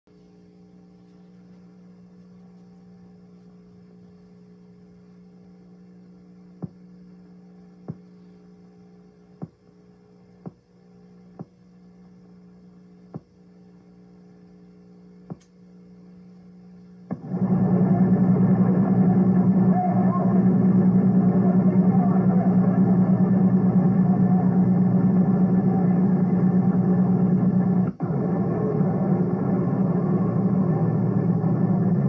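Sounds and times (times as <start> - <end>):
electrical mains hum: 0.1 - 32.0
sharp clicks: 15.3 - 15.6.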